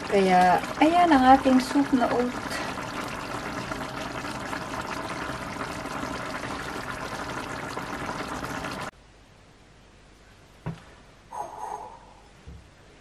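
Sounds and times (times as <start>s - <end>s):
soup bubbling in a pan: 0.0s - 8.9s.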